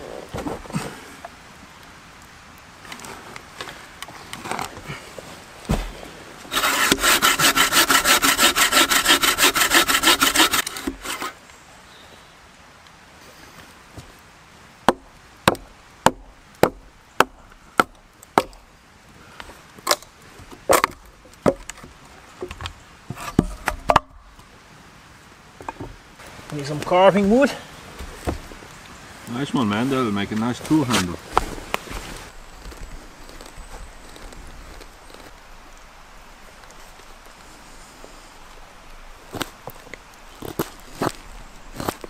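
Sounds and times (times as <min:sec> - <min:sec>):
hatchet chopping wood: 0:06.5 - 0:11.3, 0:14.9 - 0:18.6, 0:20.7 - 0:21.8
saw cutting a log: 0:06.5 - 0:11.4.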